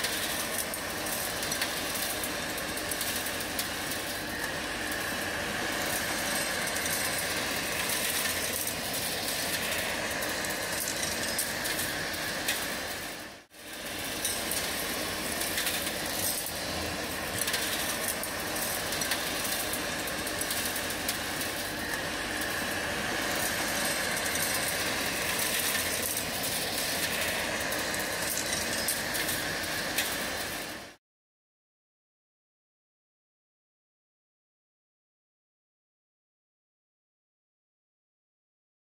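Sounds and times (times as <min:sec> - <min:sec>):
industrial vacuum motor whining: 0:00.0 - 0:30.9.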